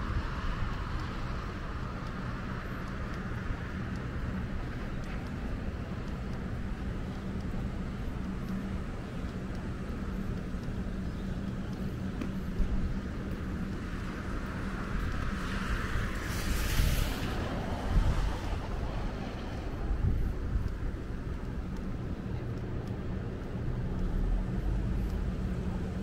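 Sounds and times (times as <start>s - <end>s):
low traffic hum: 0.0s - 26.0s
car tyres hissing on wet road: 13.8s - 20.0s.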